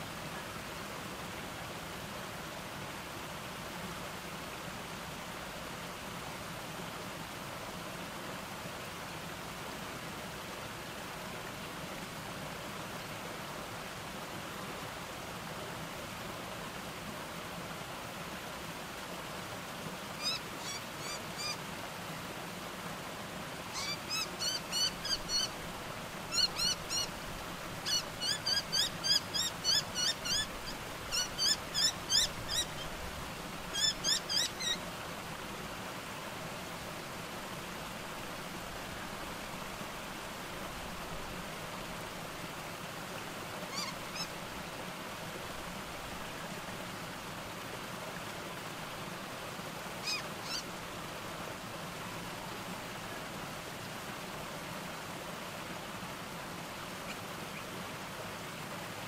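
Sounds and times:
small cascade rushing: 0:00.0 - 0:59.0
bird calling rapid sharp notes: 0:23.8 - 0:25.5.

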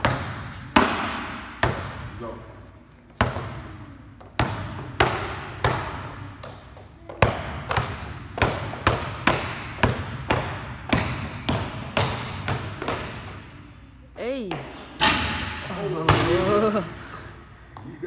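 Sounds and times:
basketball dribbling on court: 0:00.0 - 0:02.2, 0:03.1 - 0:13.6.

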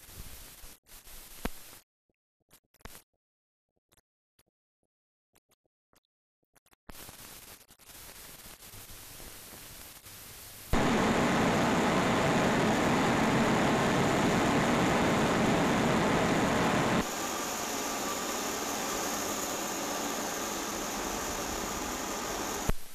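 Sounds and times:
faint crackles: 0:06.9 - 0:22.9
steam locomotive hissing roar: 0:10.8 - 0:22.7.

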